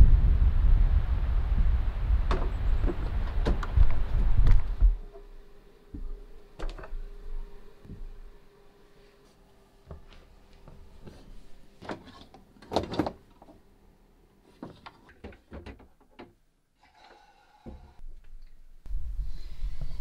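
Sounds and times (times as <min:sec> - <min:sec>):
knocks and clunks on wooden cabinet: 0:14.6 - 0:16.4.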